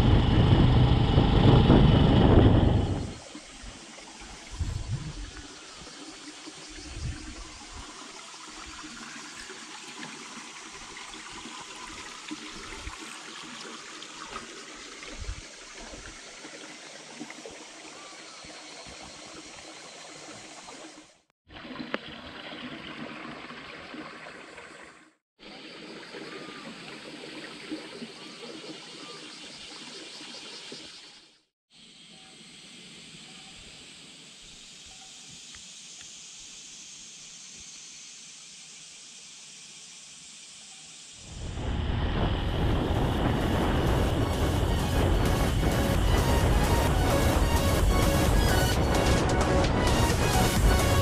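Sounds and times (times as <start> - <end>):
water trickling along a channel: 3.2 - 25.2, 25.9 - 31.2.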